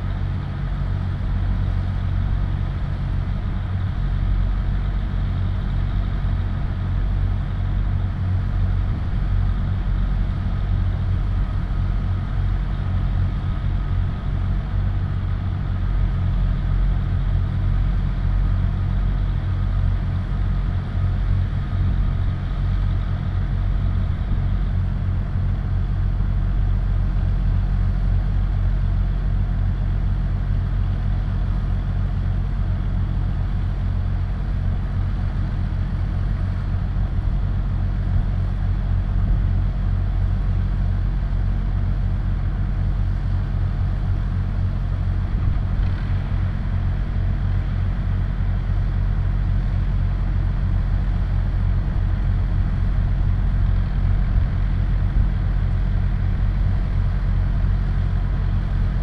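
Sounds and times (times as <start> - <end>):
vehicle engine idling: 0.0 - 59.0.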